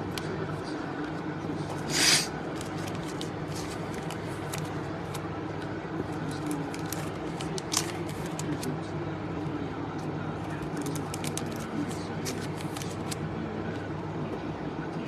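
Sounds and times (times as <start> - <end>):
steady background hum: 0.0 - 15.0
trading cards clicking and rustling: 1.9 - 5.2, 6.1 - 8.8, 10.4 - 13.2.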